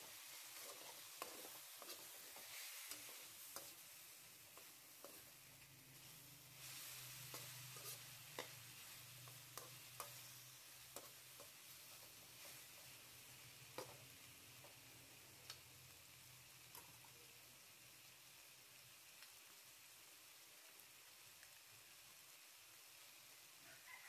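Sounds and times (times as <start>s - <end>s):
metal spatula scraping a pan: 0.0s - 5.4s, 6.0s - 13.0s, 13.7s - 14.1s
chicken sizzling in a wok: 0.0s - 24.0s.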